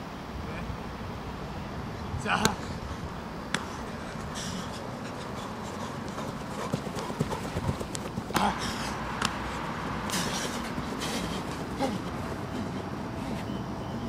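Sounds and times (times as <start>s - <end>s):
footfalls on artificial turf: 3.5s - 13.5s.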